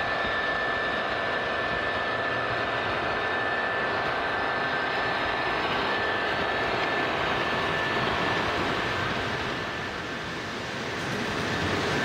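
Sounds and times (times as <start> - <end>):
model trains running on metal track: 8.4 - 12.0.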